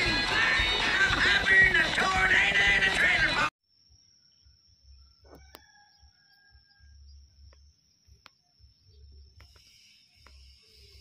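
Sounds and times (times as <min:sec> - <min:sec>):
high-pitched insect drone: 0:08.9 - 0:11.0
high hiss: 0:09.4 - 0:11.0.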